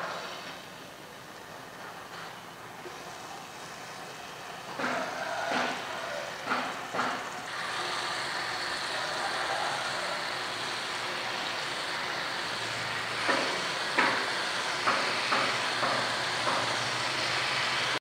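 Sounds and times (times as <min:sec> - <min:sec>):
chicken sizzling in hot oil: 0:07.5 - 0:18.0.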